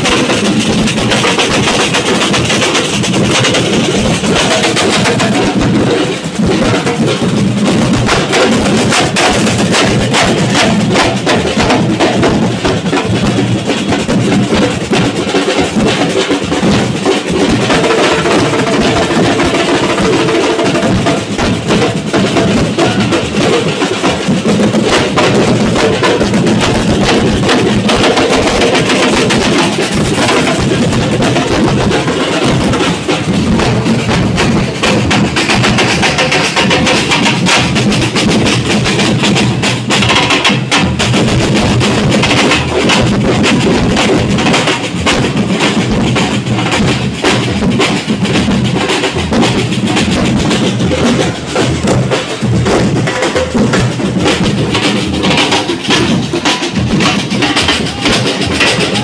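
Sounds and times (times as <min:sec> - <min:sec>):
snare drums beating: 0:00.0 - 0:59.0.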